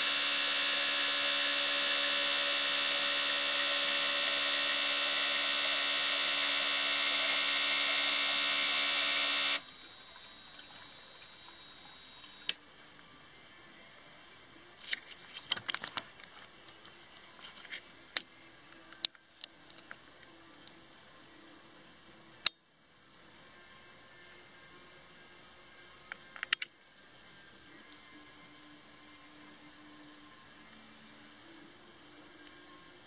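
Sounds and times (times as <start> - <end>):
fuel injectors buzzing: 0.0 - 9.6.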